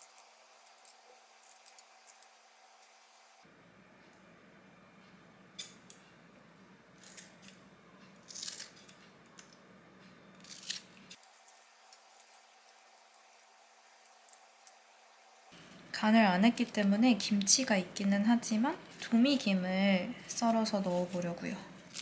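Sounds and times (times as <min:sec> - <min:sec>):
low room hum: 0:00.0 - 0:22.0
scissors snipping cabbage: 0:07.0 - 0:07.6, 0:08.2 - 0:09.5, 0:10.4 - 0:13.4.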